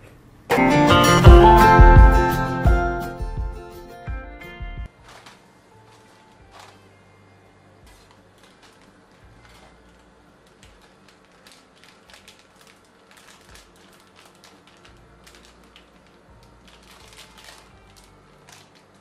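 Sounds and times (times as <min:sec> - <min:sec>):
plastic wrapper crinkling: 0:05.0 - 0:06.8, 0:07.9 - 0:19.0.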